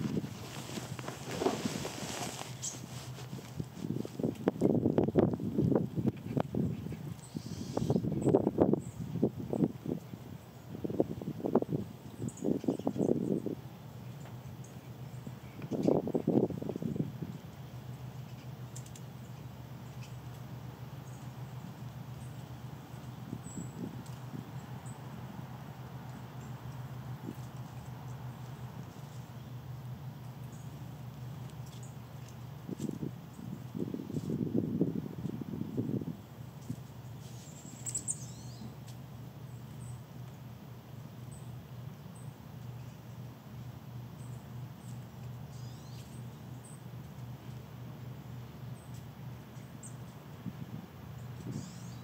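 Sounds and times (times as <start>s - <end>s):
low background hum: 0.0s - 52.0s
chickadee calls: 6.7s - 9.0s, 37.0s - 38.8s, 44.2s - 46.9s, 51.2s - 52.0s
faint light ticks: 18.2s - 19.1s.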